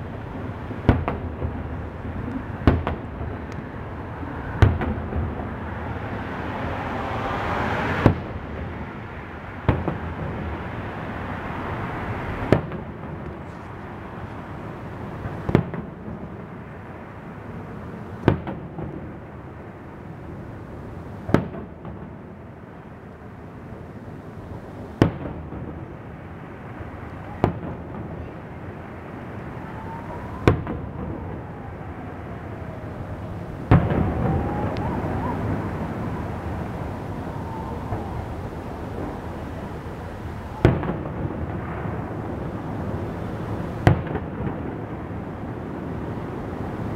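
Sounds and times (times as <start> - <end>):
fireworks bursting with echoing bangs: 0.5 - 5.6, 9.6 - 10.7, 12.3 - 13.5, 15.1 - 16.7, 18.2 - 19.4, 21.2 - 22.5, 24.9 - 46.1.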